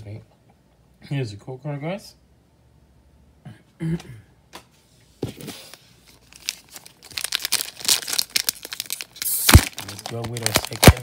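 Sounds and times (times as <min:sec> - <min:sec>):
foil wrapper crinkling and tearing: 0:06.1 - 0:11.0.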